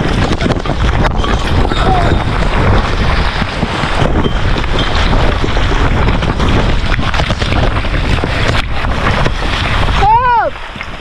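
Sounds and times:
stones clattering and tumbling: 0:00.0 - 0:11.0
wind buffeting microphone: 0:00.0 - 0:11.0.

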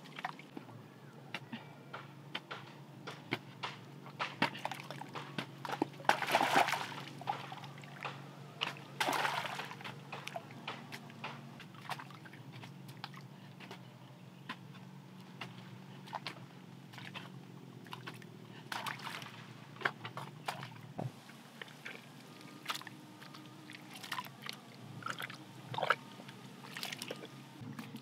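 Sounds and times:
water splashing: 0:00.0 - 0:00.6, 0:04.4 - 0:12.3, 0:16.0 - 0:28.0.

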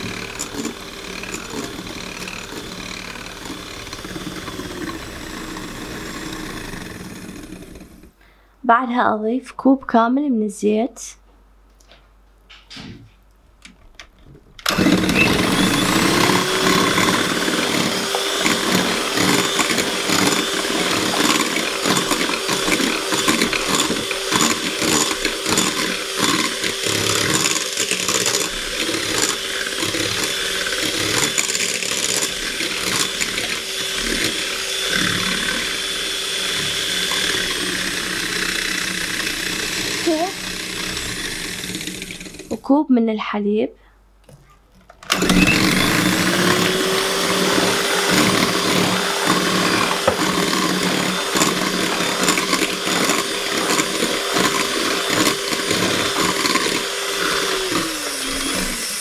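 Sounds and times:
electric hand mixer motor whine: 0:00.0 - 0:08.2, 0:14.6 - 0:42.6, 0:45.1 - 0:59.0
beaters beating batter in glass bowl: 0:14.8 - 0:40.0, 0:45.2 - 0:59.0.

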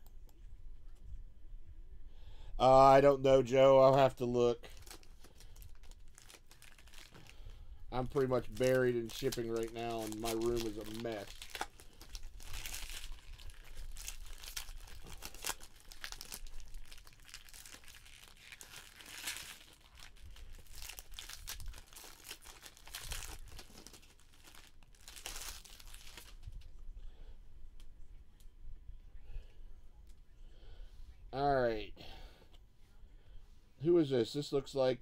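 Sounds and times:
wrappers torn and crinkled: 0:04.6 - 0:26.7.

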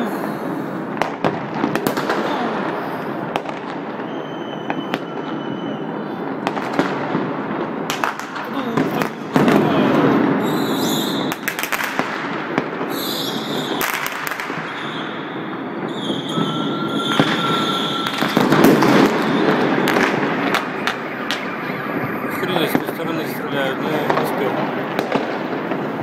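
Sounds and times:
fireworks crackle and rumble: 0:00.0 - 0:26.0
sharp firework bangs: 0:00.2 - 0:26.0
firework whistles: 0:03.7 - 0:06.4, 0:10.3 - 0:11.8, 0:12.8 - 0:24.2.

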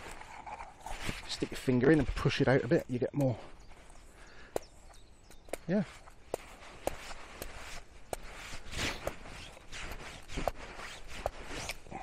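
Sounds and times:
knife blade scraping on leather: 0:00.0 - 0:01.8, 0:05.9 - 0:12.0.

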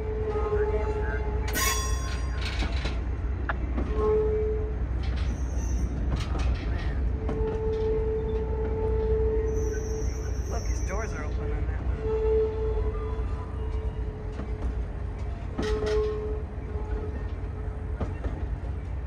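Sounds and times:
wheels rumbling on rail: 0:00.0 - 0:19.0
high wheel squeal: 0:01.5 - 0:02.6, 0:05.2 - 0:08.4, 0:09.4 - 0:11.2.

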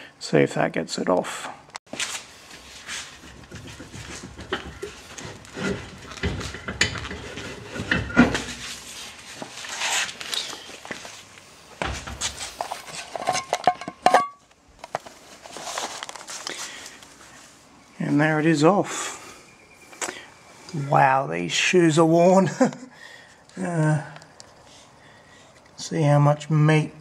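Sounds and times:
brake drum clunking and scraping: 0:02.6 - 0:08.8.

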